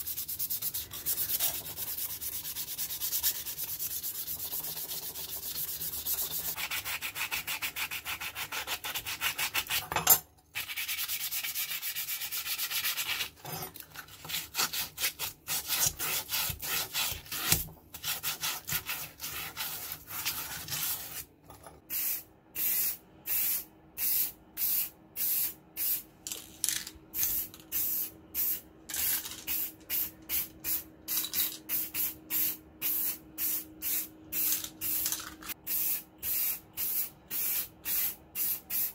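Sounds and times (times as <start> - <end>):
sandpaper rubbing on metal: 0.0 - 9.8.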